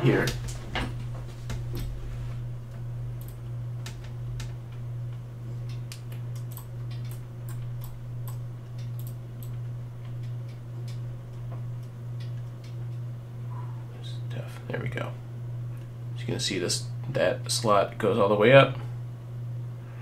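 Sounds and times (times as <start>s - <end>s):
low hum: 0.0s - 20.0s
computer mouse clicks: 5.6s - 9.6s.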